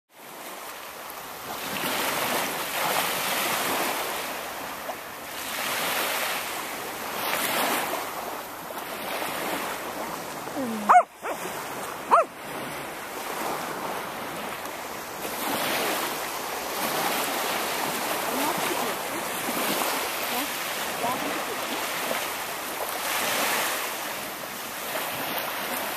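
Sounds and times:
small surf breaking on sand: 0:05.4 - 0:25.9
dog barking: 0:10.6 - 0:12.4.

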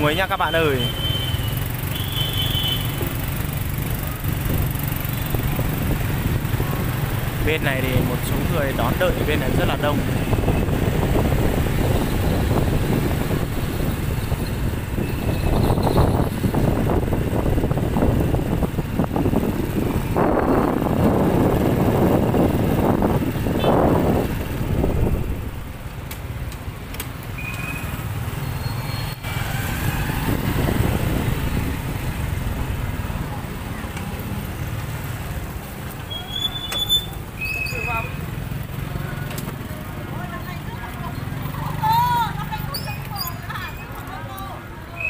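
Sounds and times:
motorbike engine rumbling: 0:00.0 - 0:44.2
motorbikes passing: 0:00.0 - 0:45.0
wind on microphone: 0:09.4 - 0:25.8, 0:29.4 - 0:33.2.

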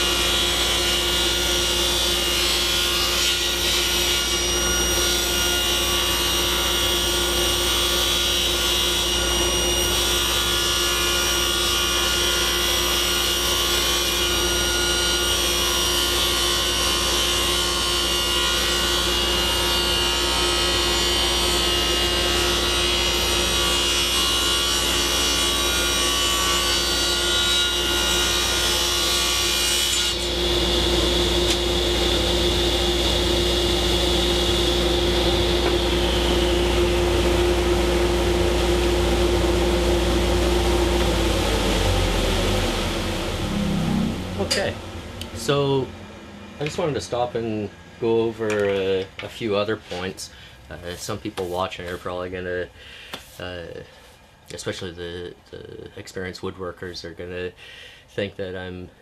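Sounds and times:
table saw cutting wood: 0:00.0 - 0:49.1
machines humming: 0:30.2 - 0:50.9.

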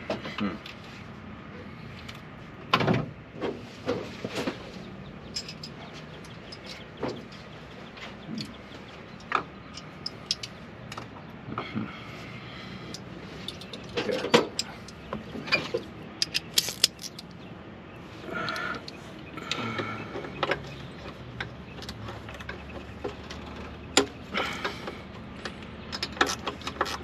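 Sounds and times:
hand tools clinking: 0:05.3 - 0:07.4, 0:13.4 - 0:17.3
ratchet clicking: 0:16.2 - 0:17.3.

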